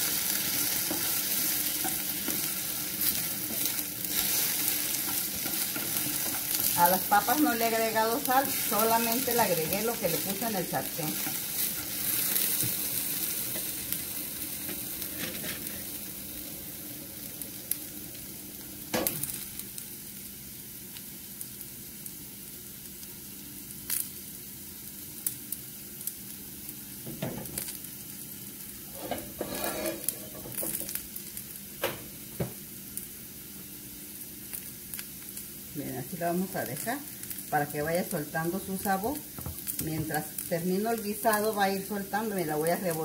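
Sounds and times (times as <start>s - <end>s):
potatoes sizzling in oil: 0.0s - 43.0s.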